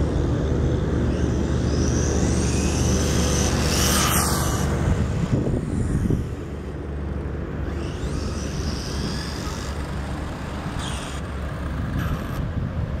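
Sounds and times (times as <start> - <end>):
electric motor whining: 0.0 - 12.5.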